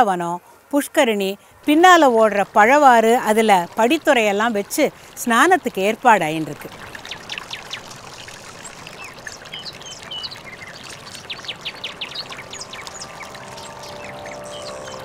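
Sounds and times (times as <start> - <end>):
river water running: 0.0 - 15.0
birds chirping: 6.4 - 15.0
soft music with held notes: 11.9 - 15.0.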